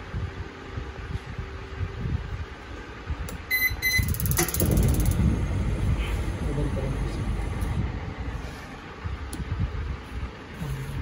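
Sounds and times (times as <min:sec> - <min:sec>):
gas burner rumble: 0:00.0 - 0:11.0
short electronic beeps: 0:03.5 - 0:04.2
spark igniter ticking: 0:04.0 - 0:05.4.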